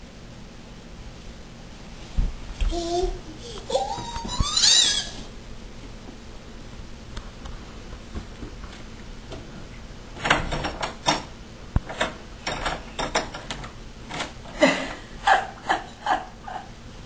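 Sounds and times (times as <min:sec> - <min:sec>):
doorknob rattling: 0:10.2 - 0:14.4.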